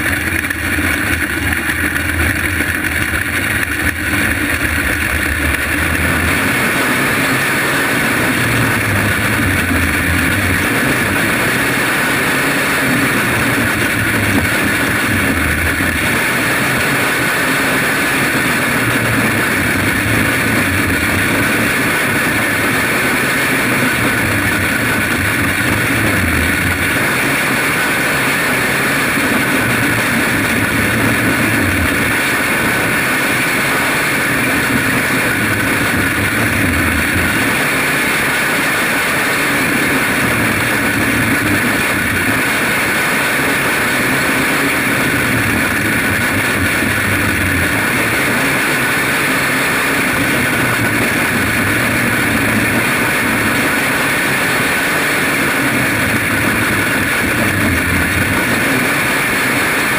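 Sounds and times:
kart engine racing: 0.0 - 59.9.

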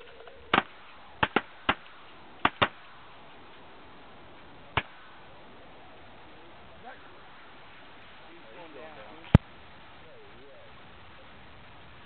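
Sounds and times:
shotgun shots: 0.5 - 2.9.

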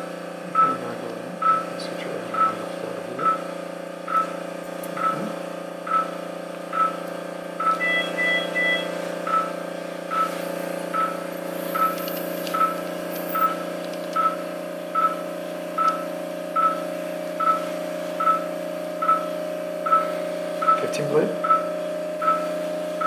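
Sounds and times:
steady hum: 0.0 - 23.0
patient monitor pulse beeps: 0.5 - 0.8, 1.4 - 7.0, 7.6 - 23.0.

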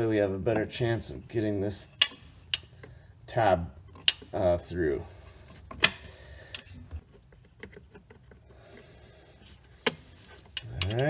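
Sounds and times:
sharp metal clicks: 2.0 - 2.9, 5.7 - 6.7.

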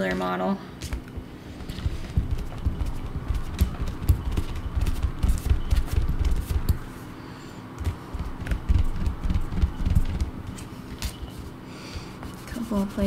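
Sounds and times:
eraser rubbing on paper: 11.0 - 13.0.

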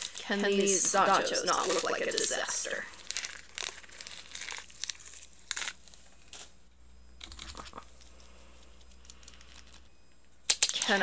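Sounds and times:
plastic packaging crinkling: 0.0 - 6.6, 7.2 - 9.9, 10.5 - 11.0.

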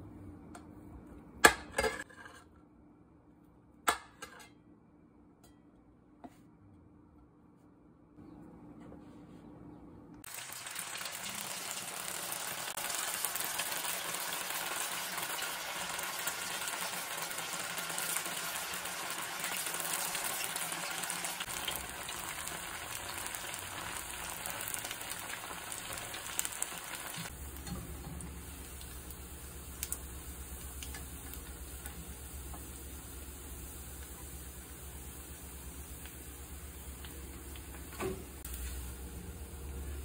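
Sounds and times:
food sizzling in hot oil: 10.2 - 40.0.

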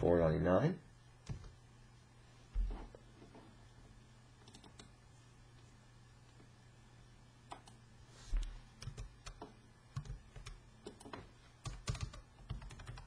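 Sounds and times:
computer keyboard typing: 4.4 - 4.9, 8.8 - 13.0.

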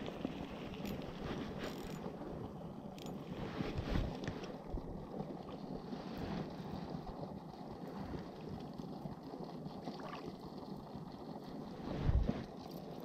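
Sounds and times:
wind on microphone: 11.7 - 12.6.

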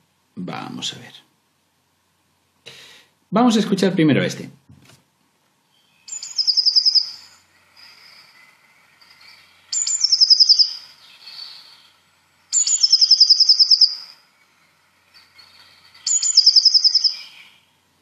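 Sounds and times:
blue tit song with trill: 5.6 - 18.0
faint bird chirps: 5.6 - 18.0.

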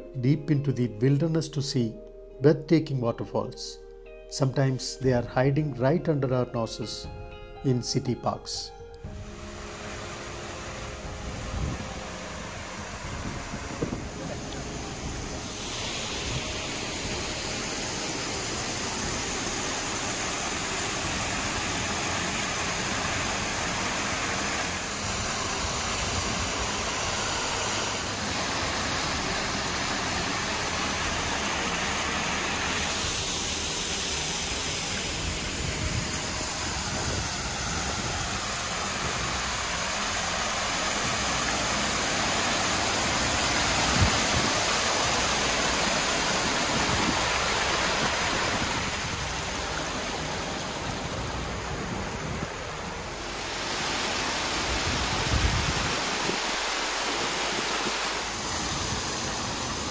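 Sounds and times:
waterfall pouring over stone: 12.1 - 59.9.

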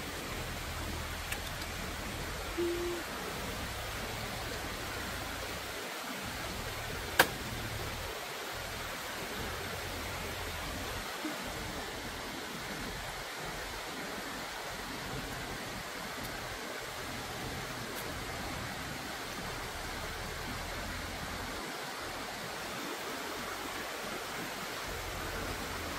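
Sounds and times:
sharp click: 7.2 - 7.4.

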